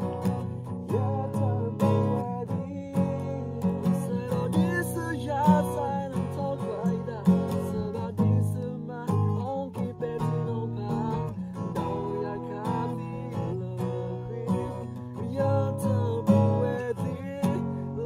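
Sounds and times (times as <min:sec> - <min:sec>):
acoustic guitar strumming: 0:00.0 - 0:18.0
person singing: 0:00.0 - 0:18.0.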